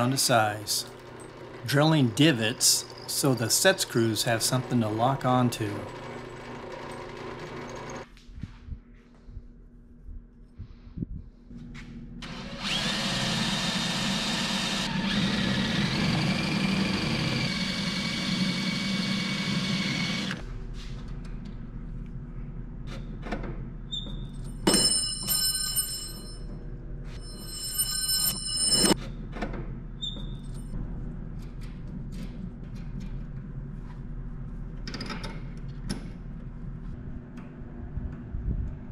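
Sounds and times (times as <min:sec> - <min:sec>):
power drill drilling into steel: 0:12.2 - 0:20.4.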